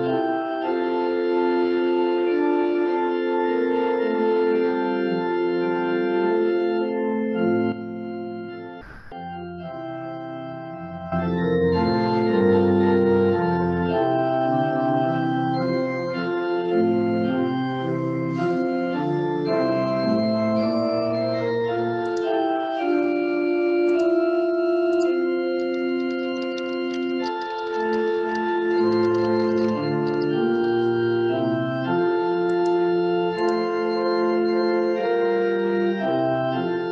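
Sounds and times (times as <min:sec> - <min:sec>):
church organ chords: 0:00.0 - 0:36.9
brief click: 0:08.8 - 0:09.3.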